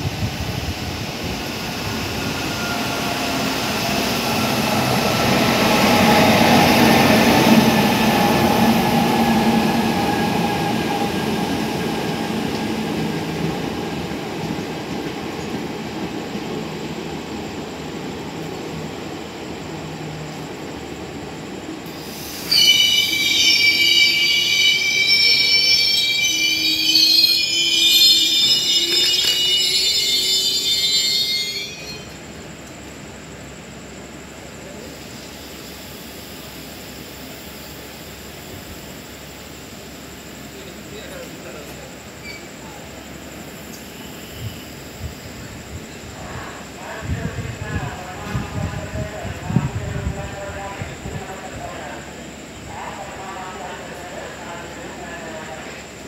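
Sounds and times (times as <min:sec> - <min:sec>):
train rumbling past: 0:00.0 - 0:56.0
high metal-on-metal squeal: 0:22.4 - 0:32.2.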